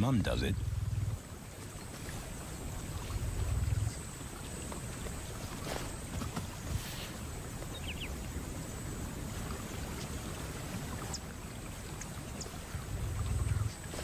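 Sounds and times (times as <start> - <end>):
rushing outdoor ambience: 0.0 - 14.0.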